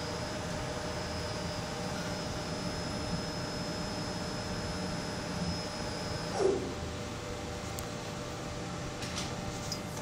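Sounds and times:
lathe machine hum and whine: 0.0 - 10.0.

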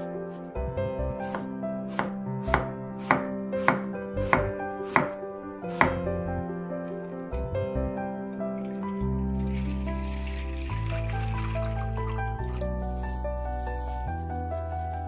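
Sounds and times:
knife knocking on cutting board: 1.2 - 5.2, 5.8 - 6.0.

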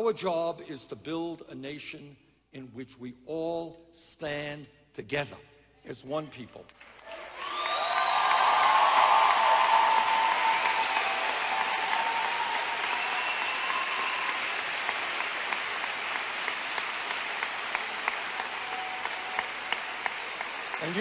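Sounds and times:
crowd applauding: 6.8 - 21.0
crowd cheering: 6.9 - 21.0.

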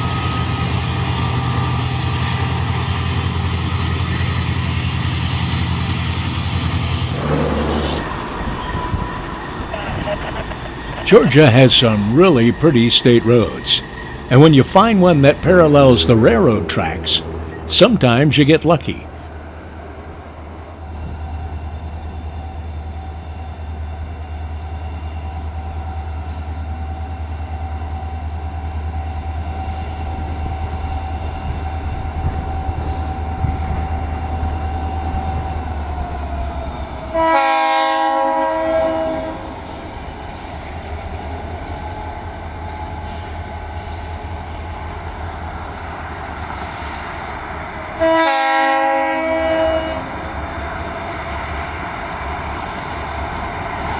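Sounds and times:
locomotive engine drone: 0.0 - 53.9
locomotive air horn blast: 37.1 - 39.6, 48.0 - 50.2.

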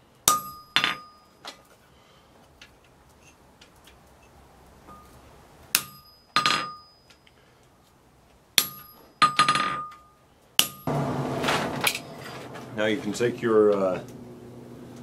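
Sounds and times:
hammer striking metal punch: 0.3 - 1.2, 5.7 - 6.9, 8.6 - 10.0, 10.6 - 13.2.

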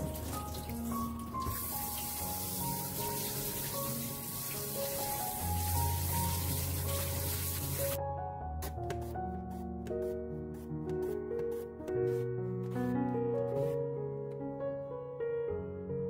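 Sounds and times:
water running and splashing: 0.0 - 8.0.

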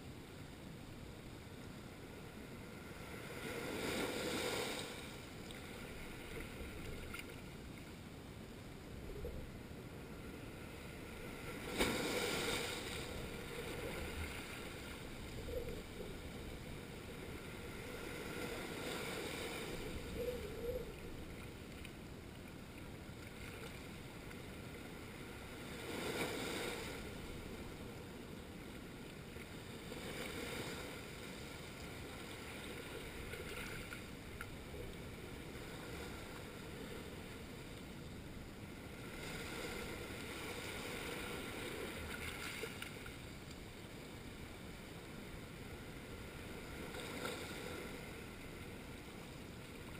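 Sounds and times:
waves washing over rocks: 10.9 - 20.1.

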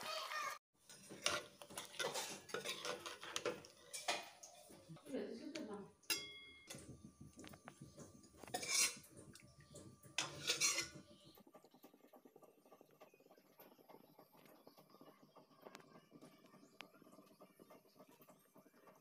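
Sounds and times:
spoon scraping bowl: 0.9 - 4.6, 6.1 - 11.3
metal spoon clinking steel bowl: 6.0 - 7.0, 8.4 - 9.1, 10.2 - 11.0.

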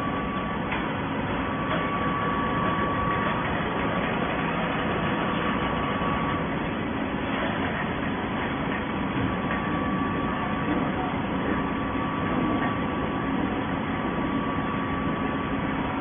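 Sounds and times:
faint high whine: 0.0 - 6.6
baler mechanical hum and rumble: 0.0 - 16.0.

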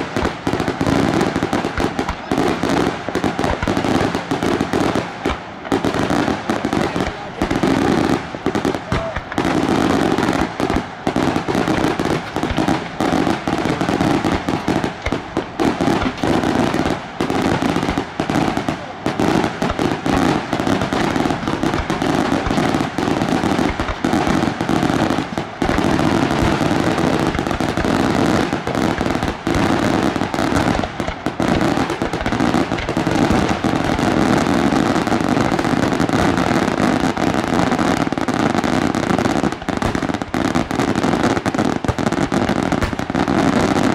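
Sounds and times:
fireworks bangs and crackling: 0.0 - 43.9.

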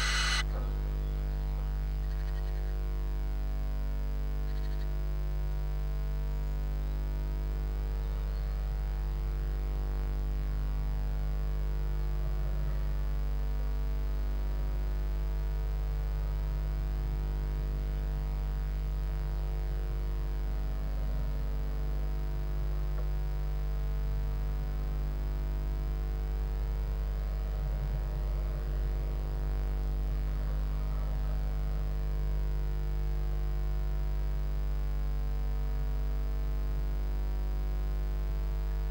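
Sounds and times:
electrical mains hum: 0.0 - 0.5.

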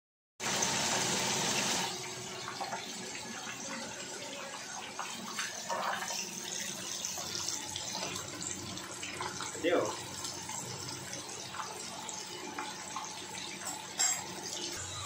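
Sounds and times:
oil sizzling with small crackles: 0.4 - 15.0.

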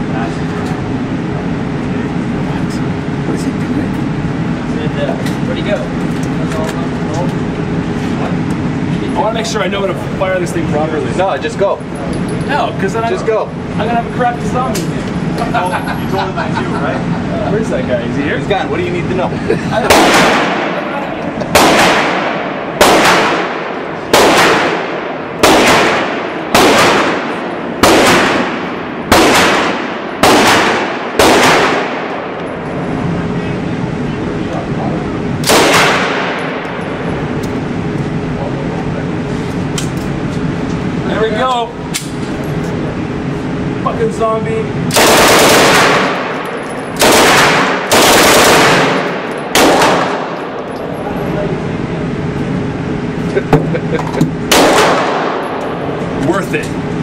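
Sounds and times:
gunshots echoing indoors: 19.8 - 32.6, 35.4 - 36.8, 44.9 - 50.6, 54.5 - 55.7
submachine gun automatic bursts: 44.9 - 46.4, 47.0 - 50.3.

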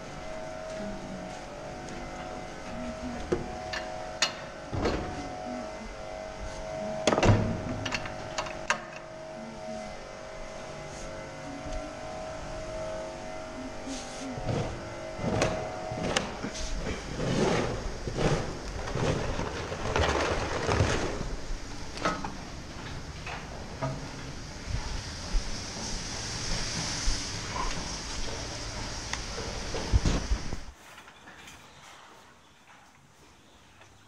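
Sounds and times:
mechanical hum with held tone: 0.0 - 34.0
scraping and clattering: 14.4 - 24.2
hiss: 24.0 - 30.7.

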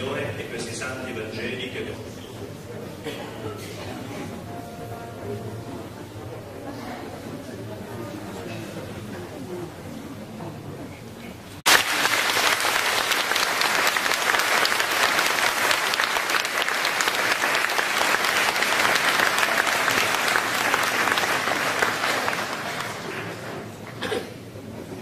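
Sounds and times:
congregation applauding: 11.7 - 24.0.

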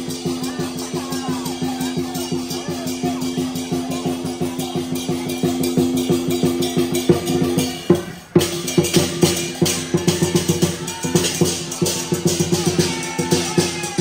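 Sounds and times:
cymbals and gong ringing: 0.0 - 14.0
large drum beaten rapidly: 0.0 - 14.0.

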